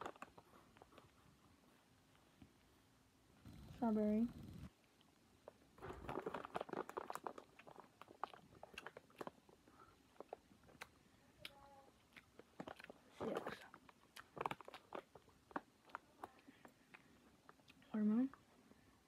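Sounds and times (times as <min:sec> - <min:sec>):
person chewing candy: 0:05.0 - 0:18.5.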